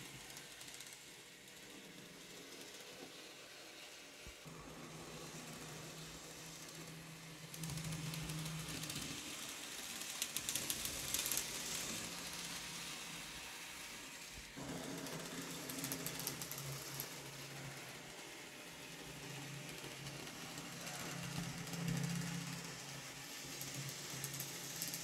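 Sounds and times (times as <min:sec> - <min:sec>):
model train motor whirring: 0:00.0 - 0:03.5, 0:04.3 - 0:25.0.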